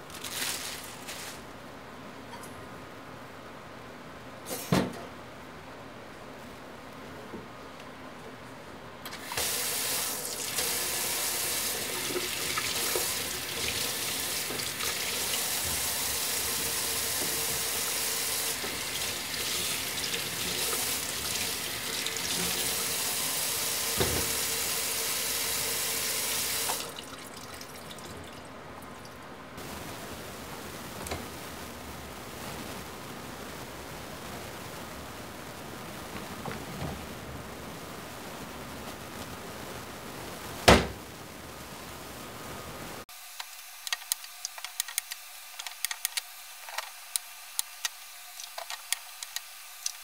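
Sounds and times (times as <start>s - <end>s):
water running: 9.2s - 29.3s.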